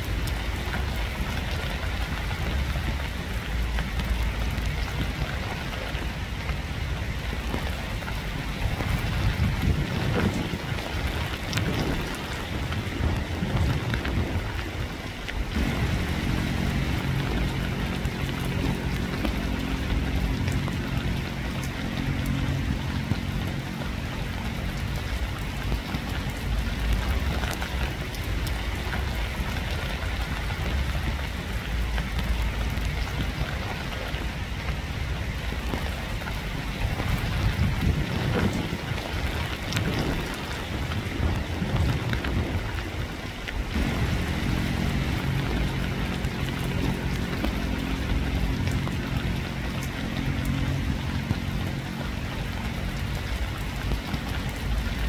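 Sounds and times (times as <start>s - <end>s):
steady rain falling: 0.0s - 55.0s
low drone: 15.5s - 30.4s, 43.7s - 55.0s.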